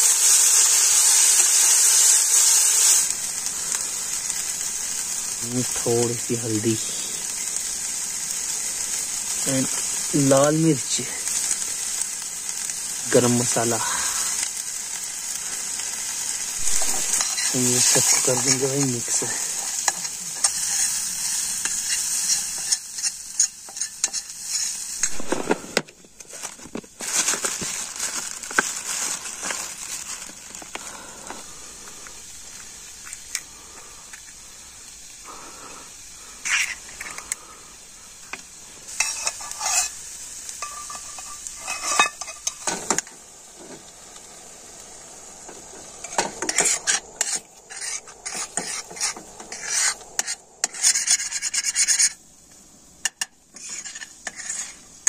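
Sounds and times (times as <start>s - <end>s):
masala sizzling in pan: 0.0s - 55.0s
spoon scraping and stirring pan: 16.6s - 26.9s, 36.4s - 37.4s, 38.3s - 43.0s, 45.4s - 52.2s, 53.0s - 55.0s.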